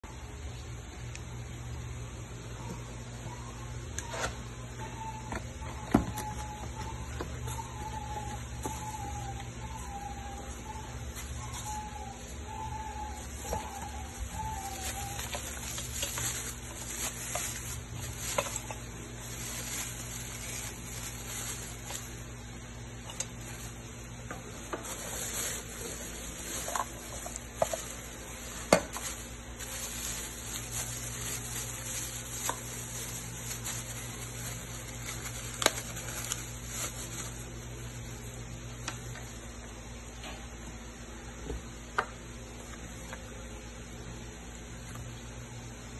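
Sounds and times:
plastic wrap crinkling: 0:06.1 - 0:39.5.

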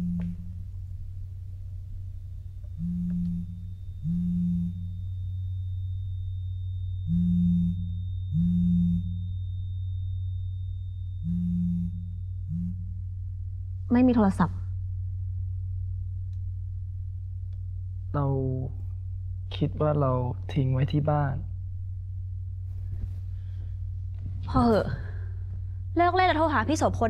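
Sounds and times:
low electronic beeps in pairs: 0:00.0 - 0:00.7, 0:02.7 - 0:13.6
faint thin high whine: 0:00.0 - 0:26.4
steady low hum: 0:00.0 - 0:27.0.

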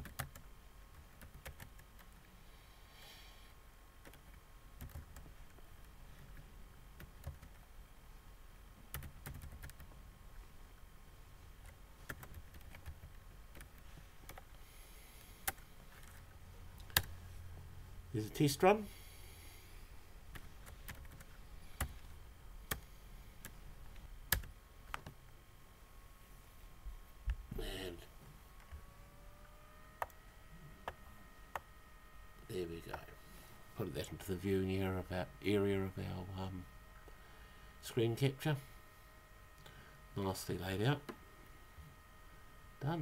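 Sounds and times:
faint keyboard typing: 0:00.0 - 0:02.3, 0:04.0 - 0:07.7, 0:08.8 - 0:10.0, 0:11.6 - 0:14.6, 0:15.2 - 0:17.2, 0:20.3 - 0:25.2.

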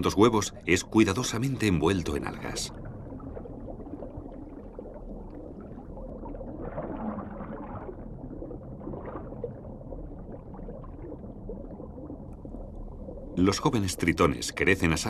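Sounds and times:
underwater gurgling: 0:00.0 - 0:15.0.

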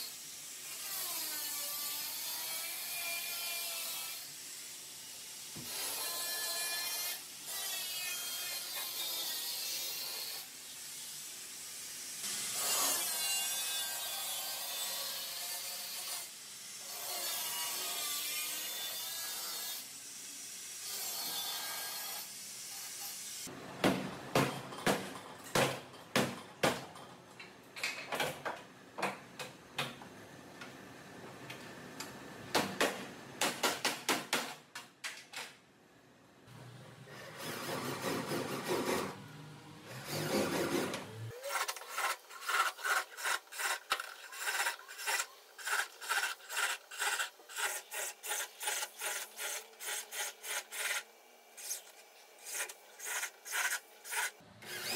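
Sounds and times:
angle grinder cutting sheet metal: 0:39.9 - 0:54.9.

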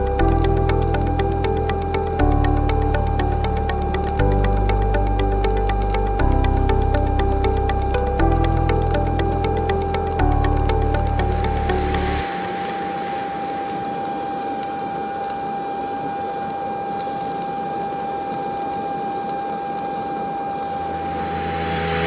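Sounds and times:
steady tone: 0:00.0 - 0:14.9, 0:20.6 - 0:22.0
welding arc crackling: 0:00.0 - 0:22.0.

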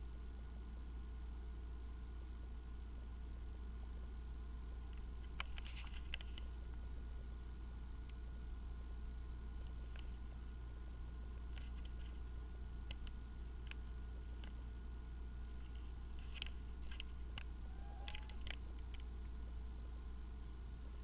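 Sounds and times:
steady low hum: 0:00.0 - 0:21.0
faint clicks and taps: 0:04.8 - 0:06.8, 0:11.5 - 0:14.6, 0:15.5 - 0:19.6.

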